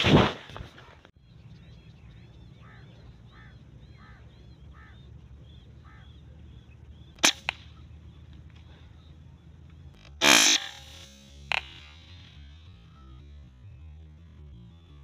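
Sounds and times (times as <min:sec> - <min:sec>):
loud sharp crack: 0:00.0 - 0:01.0, 0:07.2 - 0:08.9, 0:10.0 - 0:12.6
low rumble of wind: 0:00.0 - 0:10.2
small bird calling: 0:01.1 - 0:13.2.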